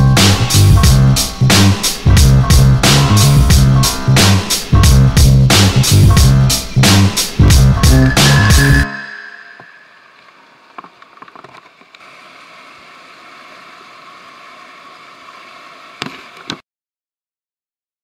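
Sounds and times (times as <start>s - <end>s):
whitewater rushing: 12.0s - 16.5s.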